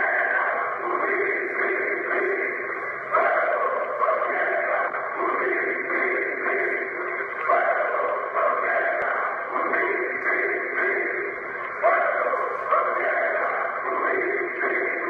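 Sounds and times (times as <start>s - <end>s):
crowd cheering and chanting: 0.0s - 15.0s.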